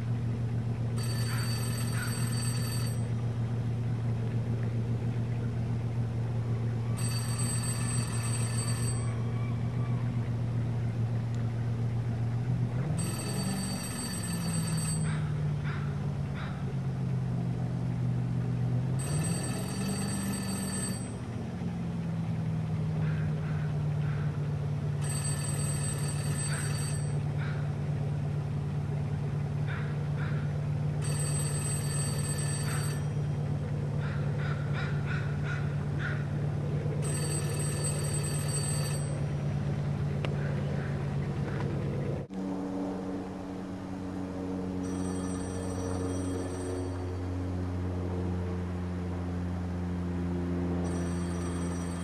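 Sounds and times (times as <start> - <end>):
low engine hum: 0.0 - 52.0
payphone ringing: 1.0 - 3.2, 7.0 - 9.3, 13.0 - 15.2, 19.0 - 21.3, 25.0 - 27.2, 31.0 - 33.3, 37.0 - 39.3, 44.8 - 47.3, 50.8 - 52.0.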